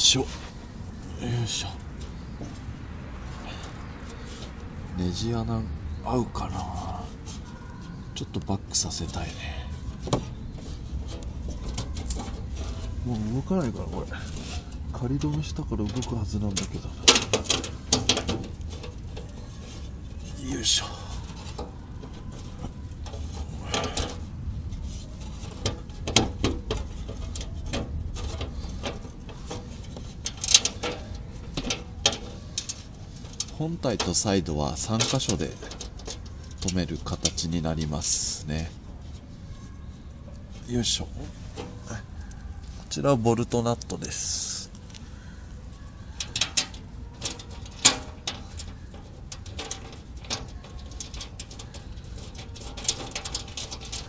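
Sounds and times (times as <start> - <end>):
metal panel scraping: 0.0 - 54.0
metallic clicks and knocks: 10.0 - 20.4, 21.2 - 39.2, 46.1 - 54.0
metallic clicks of bolt and nut: 25.4 - 33.5.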